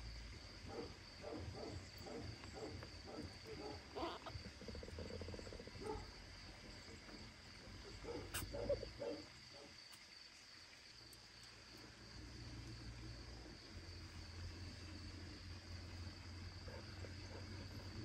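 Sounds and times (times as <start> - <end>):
cats purring: 0.6 - 9.2.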